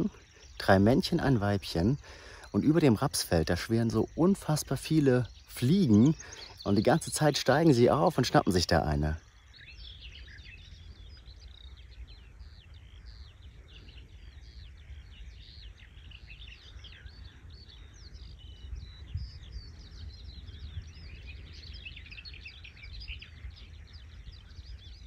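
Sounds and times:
birdsong chirps and whistles: 0.0 - 25.0.

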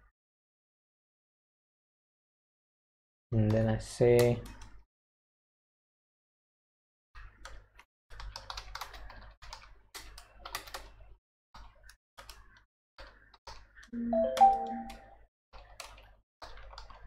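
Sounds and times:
computer keyboard typing: 7.4 - 11.0, 11.6 - 17.0.

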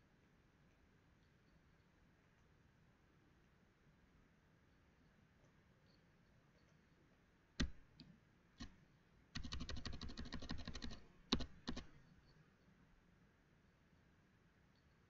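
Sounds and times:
keyboard keys clicking: 7.6 - 7.8, 9.4 - 11.9.

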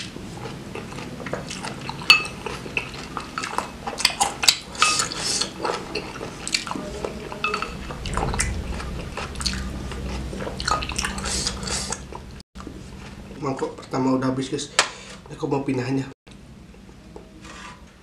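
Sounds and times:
chewing: 0.4 - 6.8.

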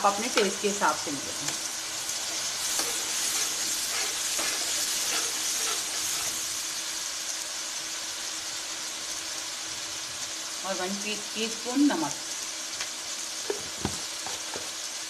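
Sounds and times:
food sizzling in hot oil: 0.0 - 15.0
spatula scraping a pan: 2.2 - 6.8.

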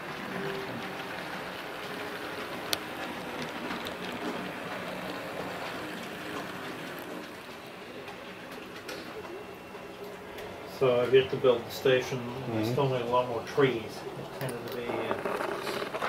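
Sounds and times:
model locomotive rattle and hum: 0.0 - 9.3, 12.8 - 16.0.

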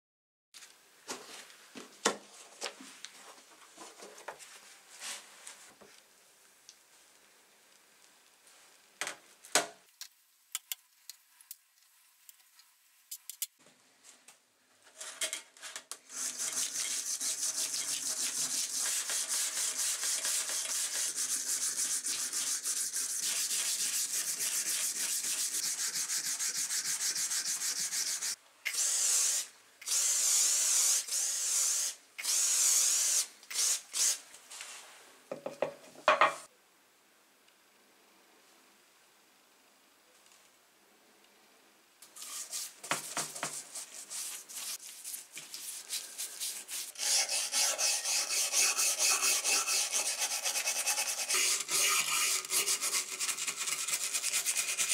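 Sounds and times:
wire brush scrubbing metal: 16.1 - 28.4, 42.2 - 54.9.

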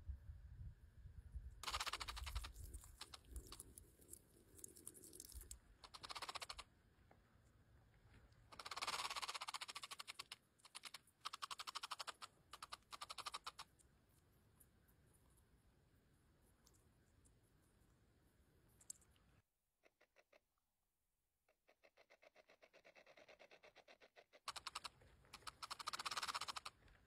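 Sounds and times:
short bursts of fast clicking: 1.6 - 6.7, 8.5 - 13.9, 21.9 - 27.0.

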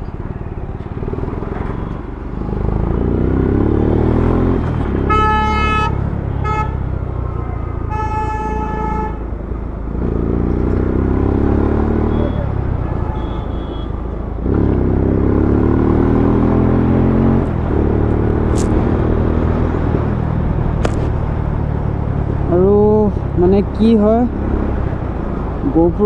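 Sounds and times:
motorcycle engine accelerating: 0.3 - 7.3, 9.8 - 13.0, 14.3 - 25.7
vehicle horn honking: 4.9 - 6.9, 7.8 - 9.3, 12.0 - 14.1.

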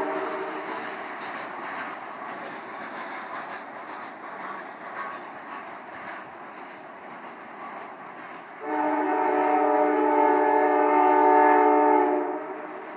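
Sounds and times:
locomotive air horn blast: 0.0 - 0.7, 8.6 - 12.8
train rumbling: 0.0 - 12.9.

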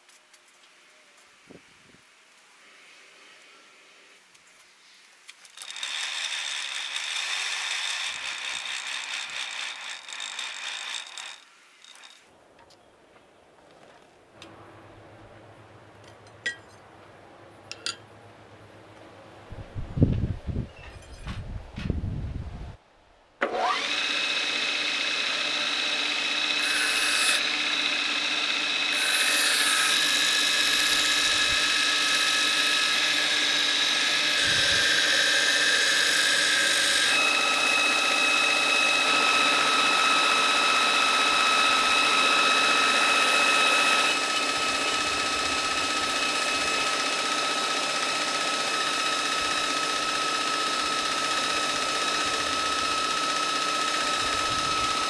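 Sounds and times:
belt grinder motor whine: 5.6 - 12.2, 23.4 - 55.0.

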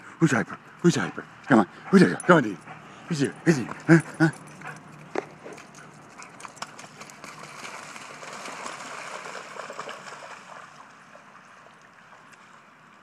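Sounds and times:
dog splashing through water: 5.1 - 12.6.

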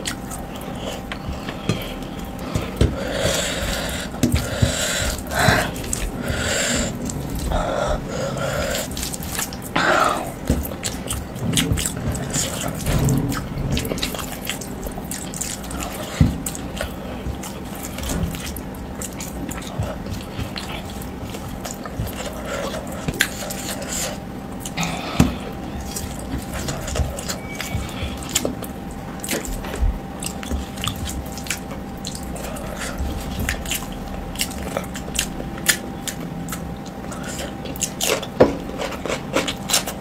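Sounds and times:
faint steady hum: 0.0 - 40.0.

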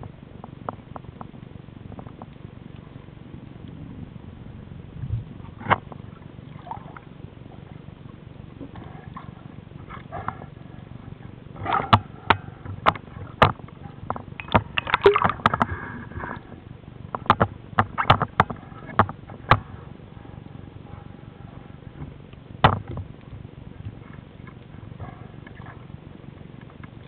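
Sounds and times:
low water rumble: 0.0 - 27.0
underwater clicks and knocks: 5.5 - 6.1, 11.6 - 16.4, 17.1 - 19.7, 21.9 - 24.7.

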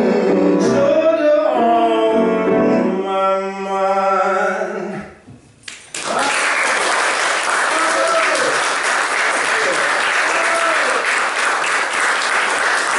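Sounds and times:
grand piano accompaniment: 0.0 - 5.0
man singing: 0.0 - 5.3
audience applause: 5.9 - 12.9.

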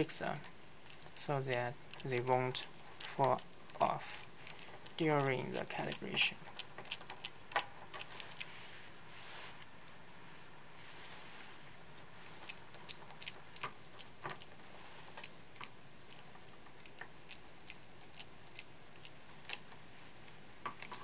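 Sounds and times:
screwdriver clicks and ticks: 0.9 - 8.5, 15.6 - 20.2.

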